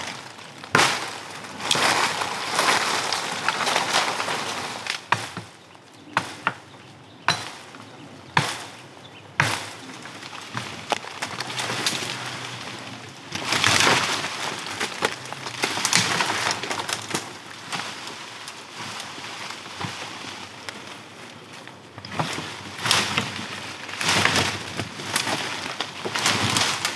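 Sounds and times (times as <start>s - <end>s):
wood cracking and splintering: 0.0s - 6.7s, 9.4s - 26.9s
leaves and branches rustling: 0.0s - 26.9s
axe chopping green wood: 7.3s - 7.6s, 9.4s - 9.8s.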